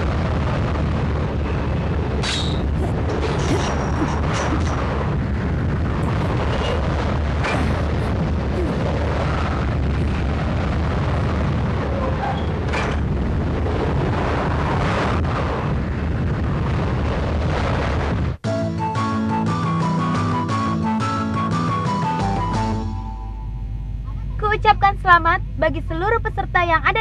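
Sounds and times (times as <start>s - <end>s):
deep rumbling roar: 0.0s - 18.4s.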